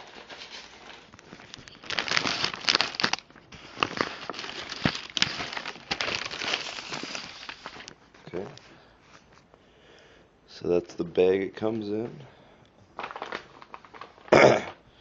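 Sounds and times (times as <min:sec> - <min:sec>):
plastic mailer crinkling: 0:00.0 - 0:08.6, 0:12.9 - 0:14.8.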